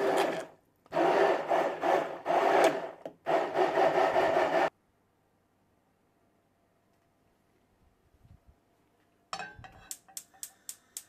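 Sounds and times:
immersion blender running: 0.0 - 4.7.

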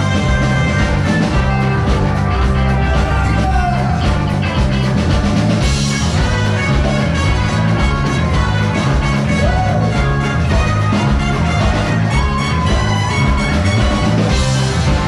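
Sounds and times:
person singing: 0.0 - 4.8
bass guitar: 0.0 - 15.0
drum kit: 0.0 - 15.0
electric guitars: 0.0 - 15.0
keyboard: 0.0 - 15.0.

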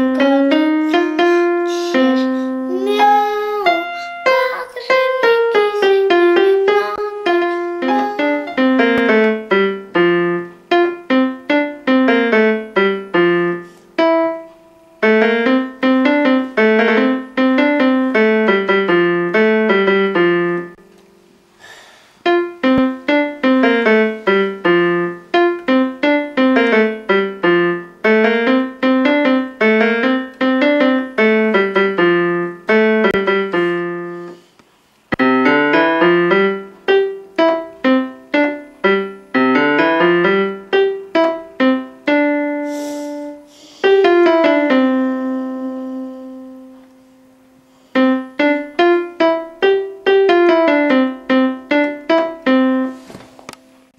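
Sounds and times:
electronic keyboard piano melody: 0.0 - 21.3, 22.2 - 34.5, 35.1 - 53.9.

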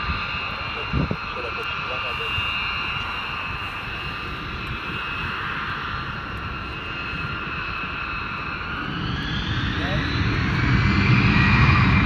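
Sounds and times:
jet engine whine and rumble: 0.0 - 12.0.

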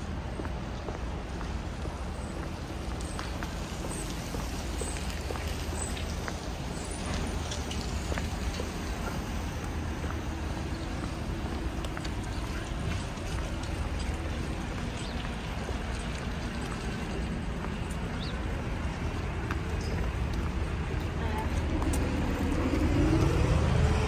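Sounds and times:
low rumble: 18.4 - 24.0.

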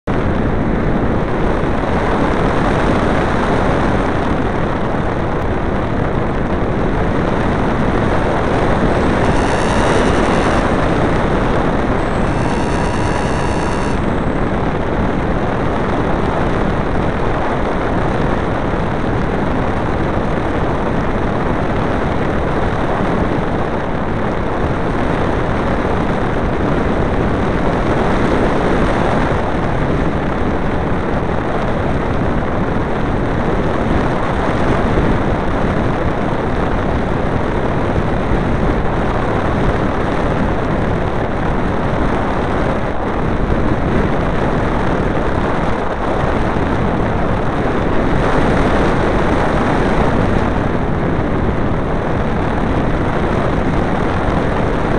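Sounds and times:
wind and propeller noise: 0.1 - 54.9
thin high whine: 8.1 - 14.9.

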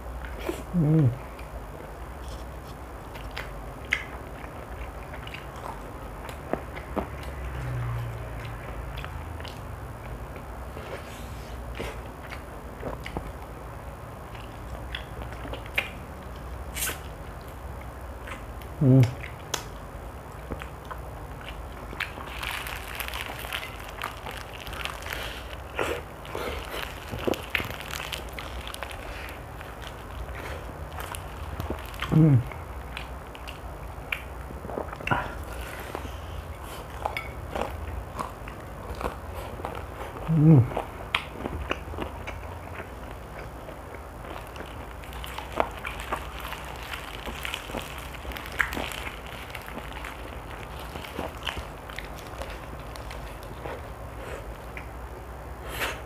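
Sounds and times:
close eating sounds: 0.0 - 56.0
person humming mm: 0.4 - 1.3, 18.8 - 19.2, 32.1 - 32.5, 40.2 - 40.8
crunching and chewing: 2.2 - 56.0.

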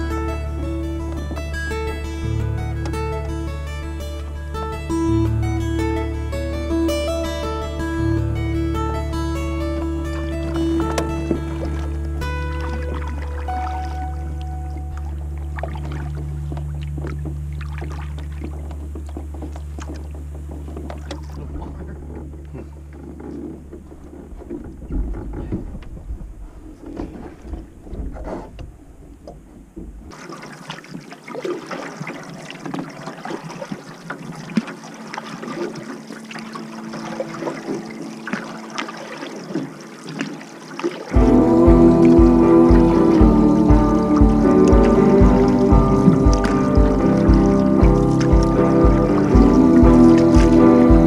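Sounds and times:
low music notes: 0.0 - 21.8, 41.2 - 51.0
paddle splashing water: 0.0 - 51.0.

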